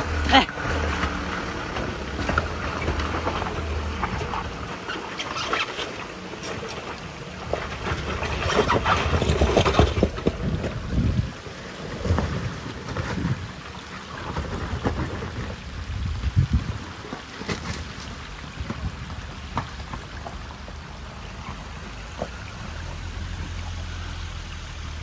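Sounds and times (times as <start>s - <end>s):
knocks and splashes: 0.0s - 23.9s
vehicle engine running low: 0.0s - 25.0s
tyres crunching over stones: 0.6s - 15.6s, 16.7s - 22.5s
wind on microphone: 8.4s - 11.4s, 14.3s - 17.0s.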